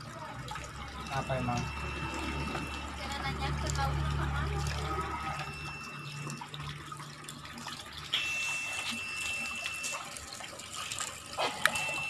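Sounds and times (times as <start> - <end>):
thin high steady tone: 0.0 - 12.0.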